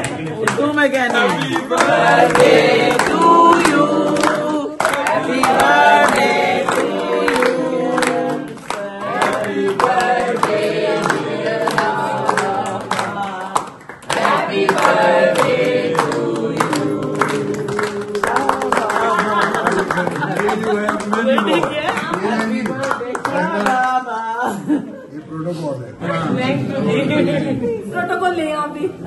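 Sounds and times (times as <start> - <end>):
people clapping in rhythm: 0.0 - 24.1
group of people singing: 1.2 - 20.3.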